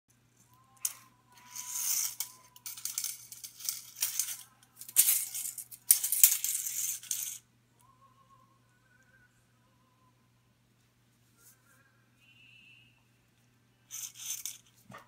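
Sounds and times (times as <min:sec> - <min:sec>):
tape measure rattling on floor: 0:00.8 - 0:07.4, 0:13.9 - 0:15.0.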